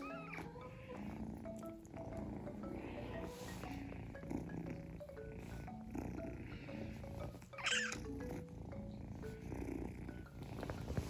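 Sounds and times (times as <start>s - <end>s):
kitten purring: 0.0s - 11.0s
light background music: 0.0s - 11.0s
kitten mewing: 7.5s - 8.1s.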